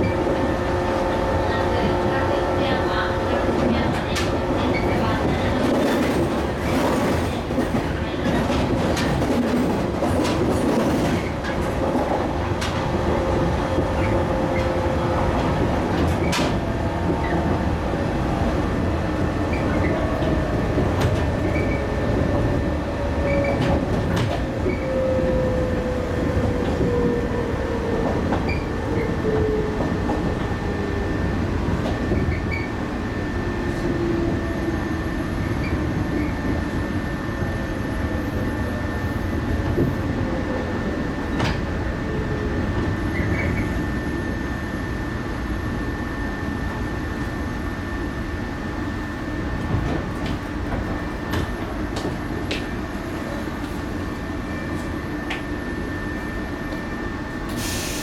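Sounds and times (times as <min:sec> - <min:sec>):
train wheels rumbling on rails: 0:00.0 - 0:58.0
rail-joint clicks: 0:15.4 - 0:17.4.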